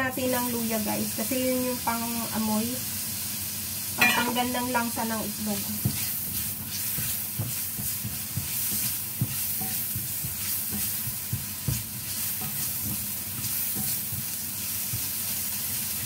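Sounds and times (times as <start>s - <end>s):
onion sizzling in hot oil: 0.0s - 16.0s
spatula knocking and scraping pan: 4.0s - 4.9s, 5.8s - 16.0s.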